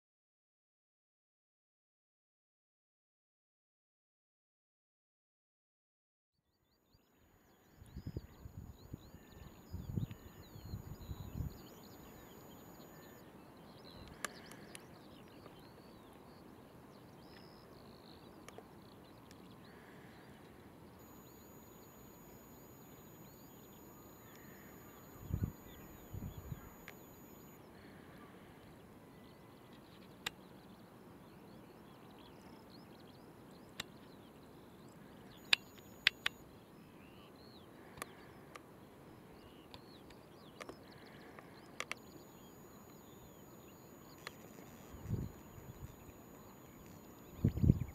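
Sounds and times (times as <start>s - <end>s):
faint background hiss: 6.7s - 47.9s
sharp clicks: 13.9s - 15.8s, 35.3s - 36.4s, 37.9s - 38.7s, 39.7s - 43.1s.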